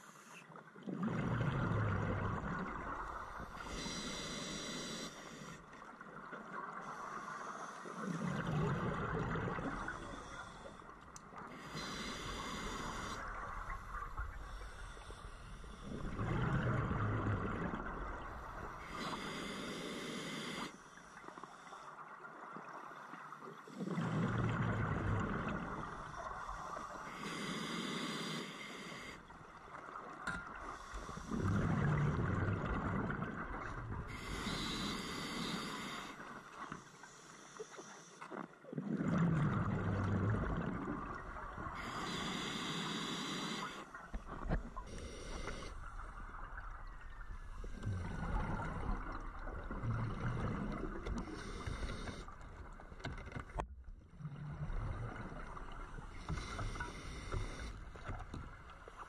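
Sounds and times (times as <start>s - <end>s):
regulator hiss on inhale: 3.1s - 5.8s, 6.8s - 8.5s, 9.6s - 16.4s, 18.4s - 22.0s, 25.5s - 29.6s, 30.5s - 32.0s, 34.1s - 38.3s, 41.6s - 46.6s, 50.4s - 52.7s, 56.0s - 58.3s.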